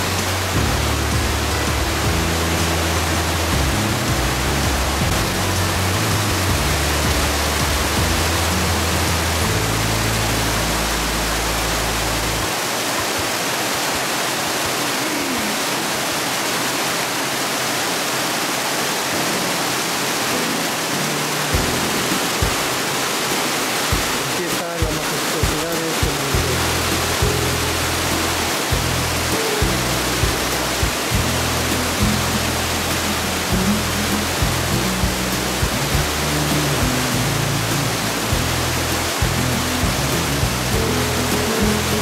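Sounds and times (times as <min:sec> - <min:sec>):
low background music: 0:00.0 - 0:12.6, 0:20.3 - 0:24.2, 0:26.1 - 0:42.0
water rushing over rock: 0:00.0 - 0:42.0.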